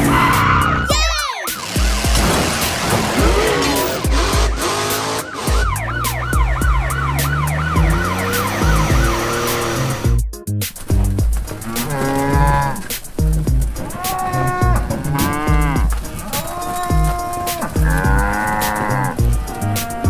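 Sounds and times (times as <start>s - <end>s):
police siren wailing: 0.0s - 10.0s
background music with beat: 0.0s - 20.0s
cow mooing: 11.6s - 12.9s, 13.8s - 20.0s.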